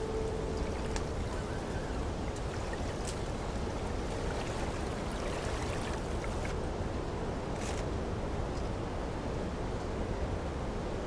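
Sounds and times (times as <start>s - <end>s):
held music note: 0.0s - 1.5s
continuous wash of water: 0.0s - 11.0s.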